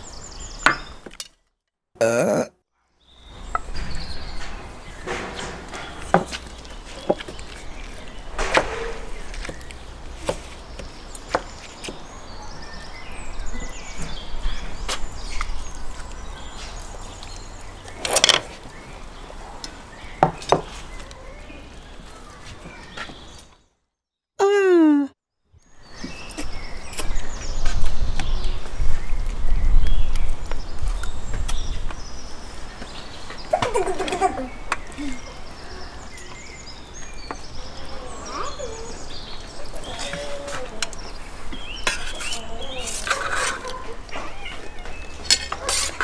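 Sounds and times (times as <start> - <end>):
utensils scraping: 41.8 - 43.9, 45.2 - 46.0.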